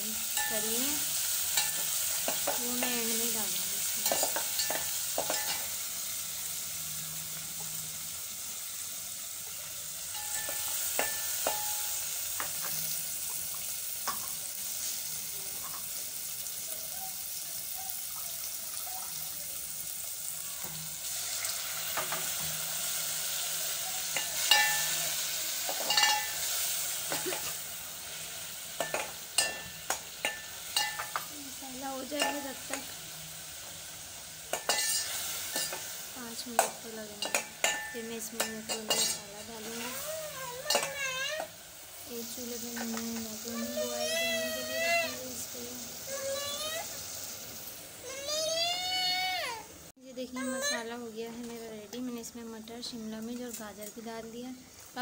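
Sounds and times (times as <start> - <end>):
food sizzling in a pot: 0.0 - 55.0
spoon scraping a pot: 24.1 - 26.5, 34.5 - 35.9, 36.6 - 40.0.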